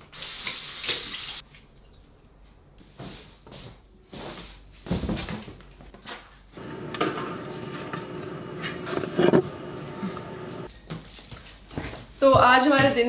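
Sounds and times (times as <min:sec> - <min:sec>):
refrigerator hum: 0:06.6 - 0:10.7.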